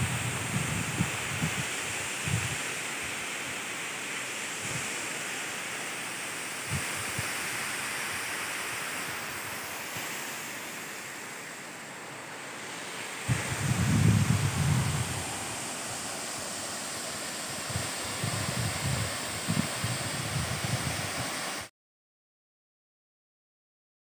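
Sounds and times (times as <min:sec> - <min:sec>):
wind bumps on microphone: 0:00.0 - 0:02.6, 0:06.6 - 0:07.3, 0:13.2 - 0:15.6, 0:17.5 - 0:21.4
waterfall rushing: 0:00.0 - 0:21.7.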